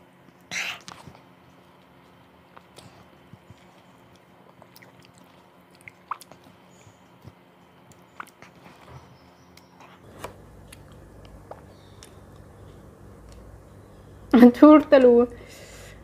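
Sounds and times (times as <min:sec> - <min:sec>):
low steady hum: 0:00.0 - 0:16.0
wet chewing mouth sounds: 0:00.4 - 0:08.7, 0:10.6 - 0:12.5.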